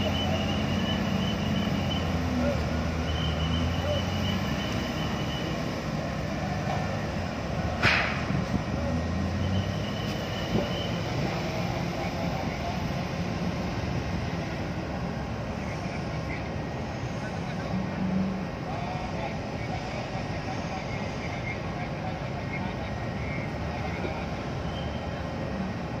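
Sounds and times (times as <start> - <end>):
heavy truck engine rumbling: 0.0 - 26.0
sharp metallic clank: 7.8 - 8.4.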